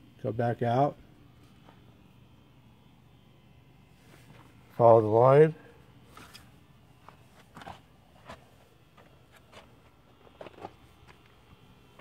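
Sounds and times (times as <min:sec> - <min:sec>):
faint short scuffs and rustles: 0:03.9 - 0:04.7, 0:06.0 - 0:11.3.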